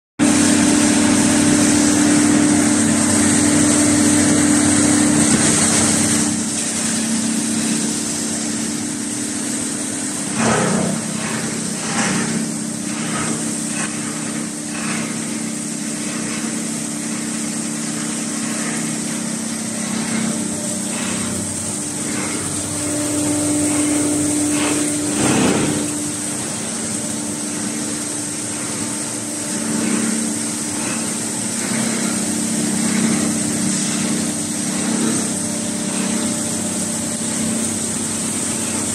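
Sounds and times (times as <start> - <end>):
machine hum with high whine: 0.2 - 38.9
short loud machine bursts: 23.7 - 26.6.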